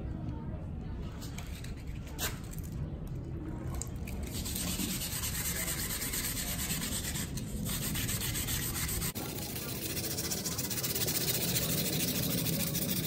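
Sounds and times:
abrasive pad rubbing metal: 4.6 - 13.0.

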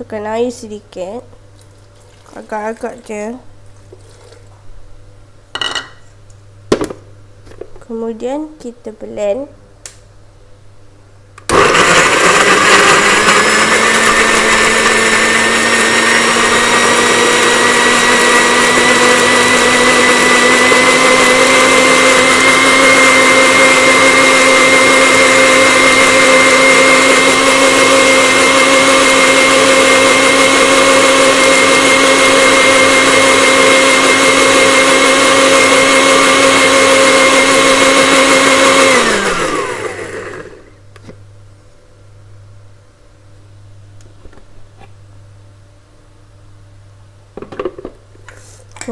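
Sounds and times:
blender motor whine: 11.5 - 40.8.

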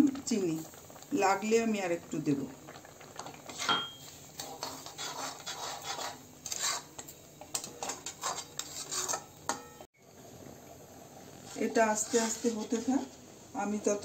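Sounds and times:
metal spatula scraping a wok: 3.5 - 9.8, 11.4 - 13.2.

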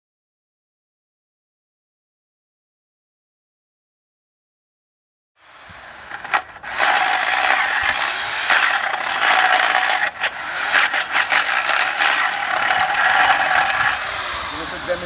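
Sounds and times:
electric drill grinding: 5.4 - 15.0.

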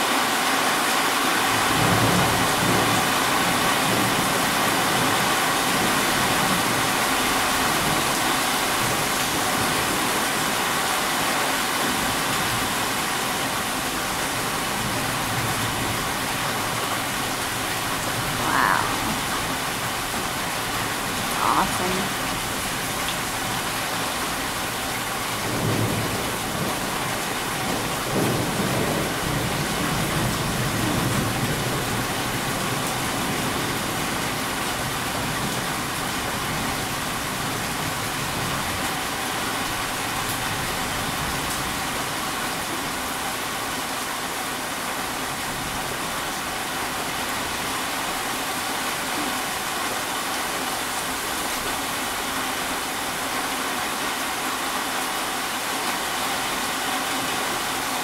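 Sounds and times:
steady rain hiss: 0.0 - 58.0
thunder rumble: 25.4 - 32.5.

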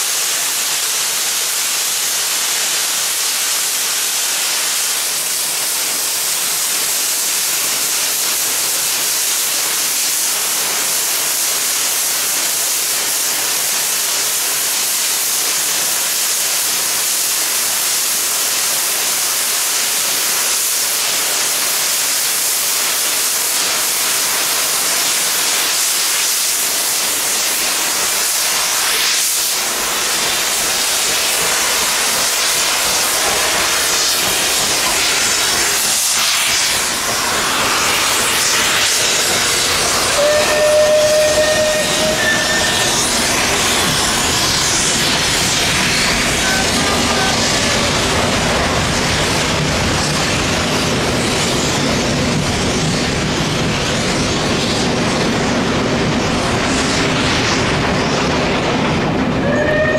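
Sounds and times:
steam hissing: 0.0 - 59.9
locomotive rumble: 36.8 - 59.9.

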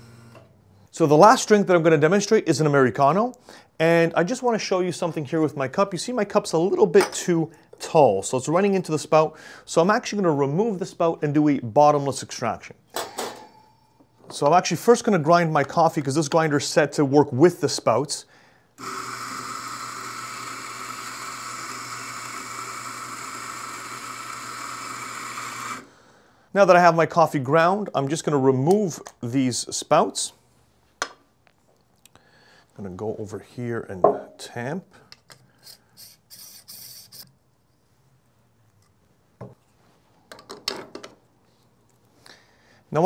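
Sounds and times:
coffee grinder grinding: 18.8 - 25.9.

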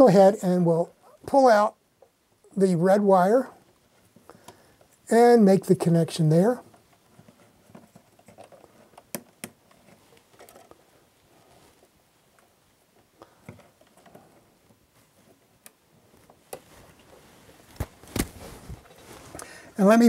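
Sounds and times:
hands rustling: 9.7 - 19.8.

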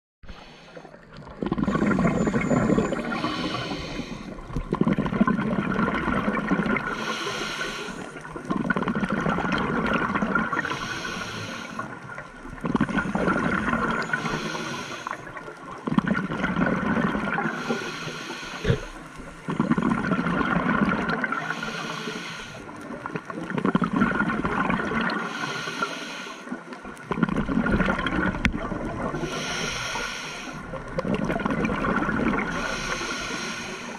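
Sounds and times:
regulator inhale hiss: 0.3 - 1.0, 1.7 - 4.6, 6.8 - 8.3, 10.5 - 12.1, 14.0 - 15.4, 17.4 - 19.4, 21.3 - 22.8, 25.1 - 26.7, 29.2 - 30.8, 32.4 - 33.9
exhaled bubbles gurgling: 0.3 - 33.9
faint steady tone: 1.6 - 4.4.

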